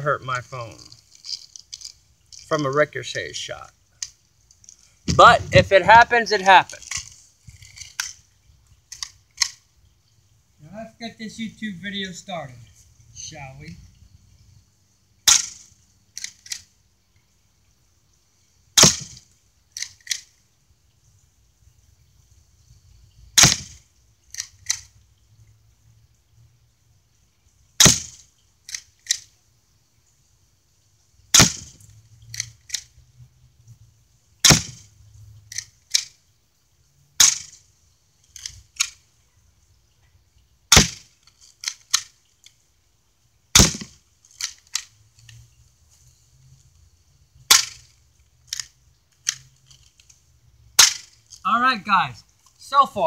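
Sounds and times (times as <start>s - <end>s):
airsoft gun cracks: 15.3s - 16.7s, 18.8s - 20.3s, 23.4s - 24.9s, 27.8s - 29.3s, 31.3s - 31.8s, 34.4s - 34.8s, 37.2s - 37.6s, 40.7s - 42.2s, 43.6s - 44.9s, 47.5s - 47.9s, 50.8s - 51.2s.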